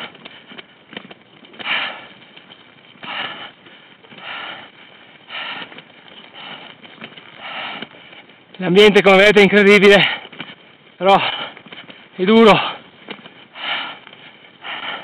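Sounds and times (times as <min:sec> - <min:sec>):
person breathing hard: 0:00.0 - 0:08.6, 0:09.9 - 0:15.0.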